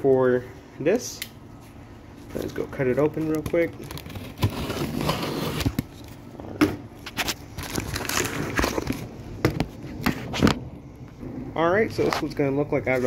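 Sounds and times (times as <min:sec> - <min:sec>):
cardboard crackling: 0:02.4 - 0:06.2, 0:07.0 - 0:10.6.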